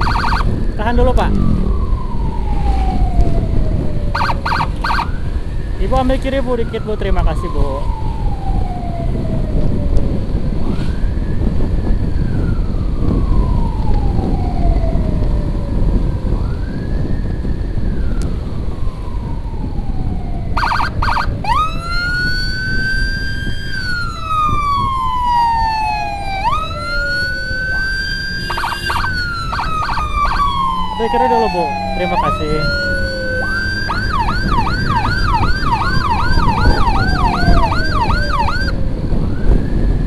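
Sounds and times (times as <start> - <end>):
emergency siren wailing: 0.0 - 40.0
wind: 0.0 - 40.0
motorcycle engine rumble: 18.4 - 40.0.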